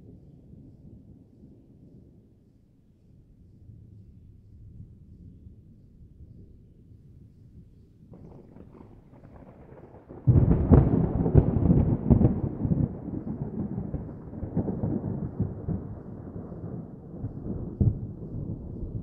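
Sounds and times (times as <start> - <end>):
thunder rumbling: 8.2 - 19.0
thunderclap: 8.2 - 19.0.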